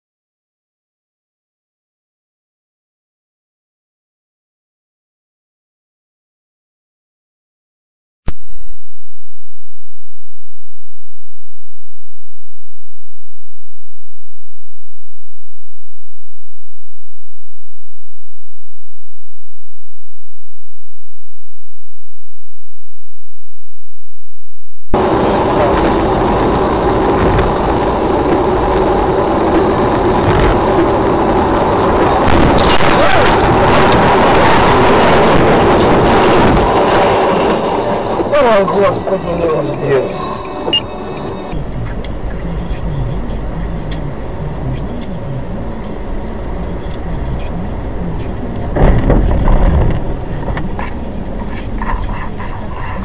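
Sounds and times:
loud noisy burst: 0:25.0 - 0:38.4
vehicle engine and road noise: 0:25.0 - 0:53.0.

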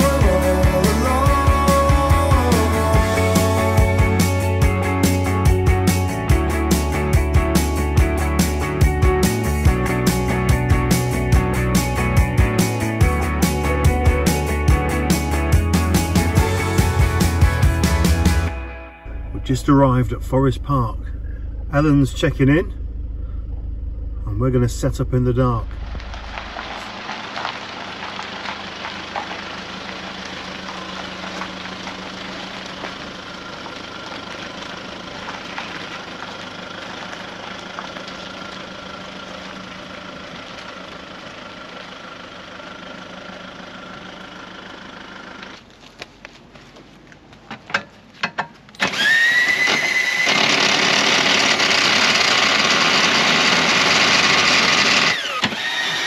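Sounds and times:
car engine running: 0:00.0 - 0:56.0
cordless drill whirring: 0:48.8 - 0:56.0.

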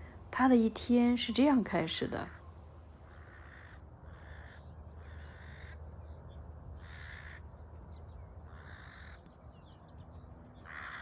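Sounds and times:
crows cawing: 0:03.0 - 0:05.9, 0:06.7 - 0:07.6, 0:08.5 - 0:09.3, 0:10.6 - 0:11.0.

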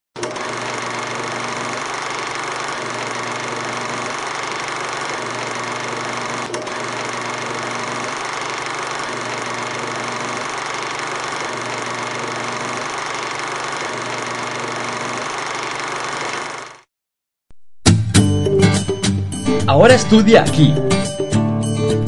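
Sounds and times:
small motor whirring and rattling: 0:00.2 - 0:16.9.

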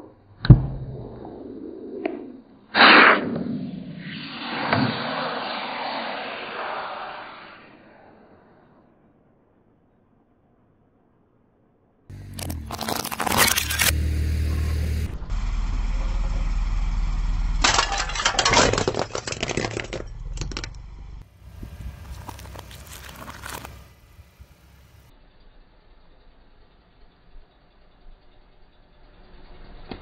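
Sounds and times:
car tyre crushing objects: 0:12.1 - 0:14.1, 0:15.4 - 0:24.8
car rumbling: 0:12.1 - 0:26.2
soft vegetable being flattened: 0:21.8 - 0:23.8.

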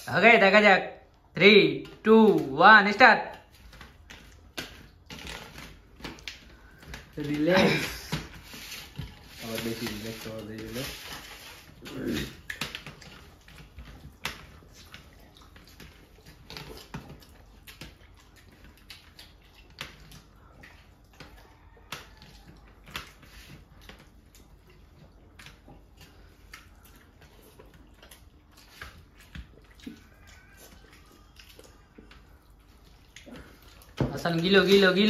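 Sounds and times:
chewing: 0:03.4 - 0:35.0
fingers squishing food: 0:11.4 - 0:35.0.

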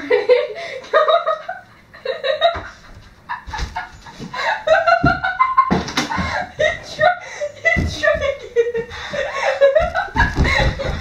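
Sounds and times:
thumps of movement: 0:09.8 - 0:11.0.

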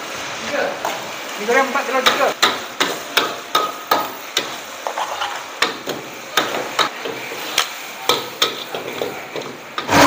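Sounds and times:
frying sizzle: 0:00.0 - 0:10.0
metal utensils clanking on wok: 0:02.0 - 0:10.0.

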